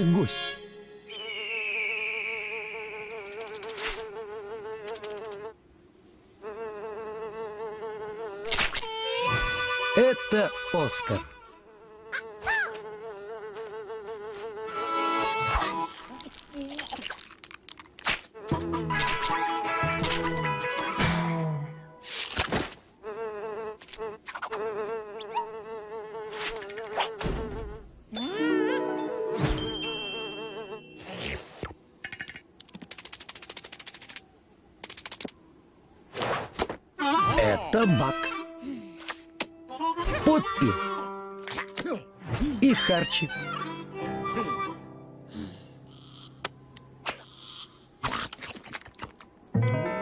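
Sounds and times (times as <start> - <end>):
cartoon fly buzzing: 0.4 - 5.6, 6.4 - 21.0, 22.0 - 31.8.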